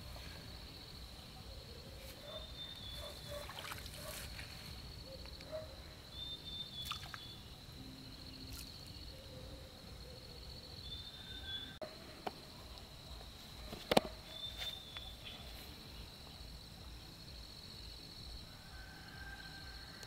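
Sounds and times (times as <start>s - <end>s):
water trickling and sloshing: 3.0s - 4.5s, 6.8s - 7.3s
high-pitched insect trill: 6.0s - 11.8s.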